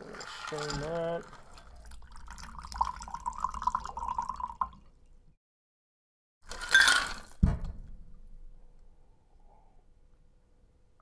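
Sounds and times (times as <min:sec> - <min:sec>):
liquid pouring into a glass: 0:00.2 - 0:05.0.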